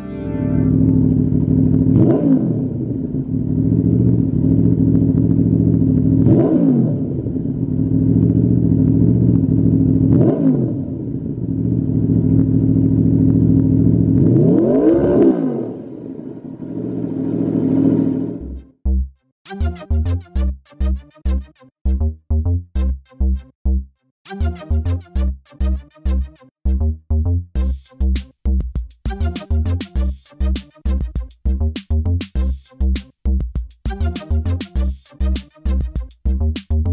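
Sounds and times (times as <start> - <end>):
motorcycle engine idling and revving: 0.7 - 18.6.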